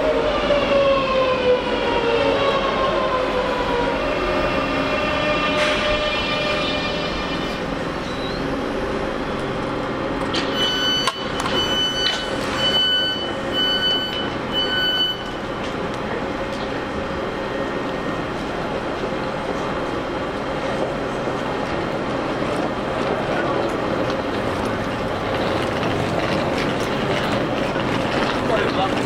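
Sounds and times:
train motor whine: 0.0 - 29.0
door warning beeps: 10.4 - 15.5.

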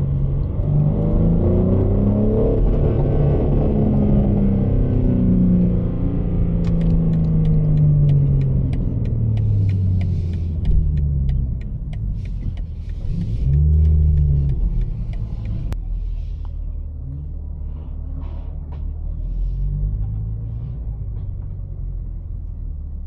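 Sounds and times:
car engine heard from cabin: 0.0 - 23.0
light quick ticks: 6.6 - 15.8.

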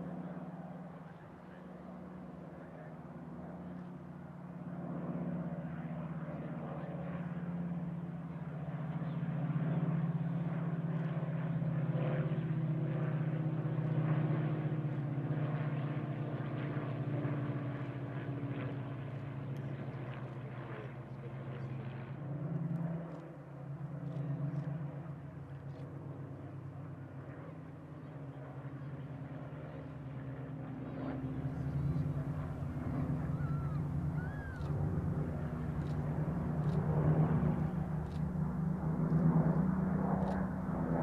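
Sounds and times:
propeller aircraft engine drone: 0.0 - 41.0.

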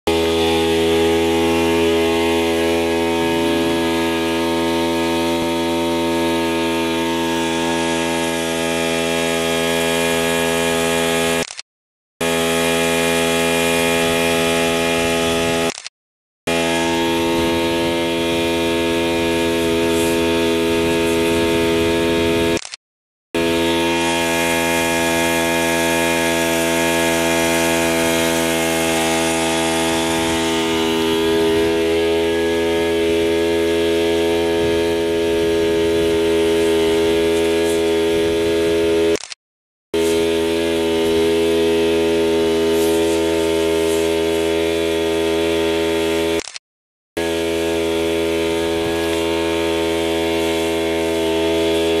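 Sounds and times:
small engine running: 0.0 - 11.6, 12.2 - 15.9, 16.5 - 22.8, 23.4 - 46.6, 47.2 - 52.0.

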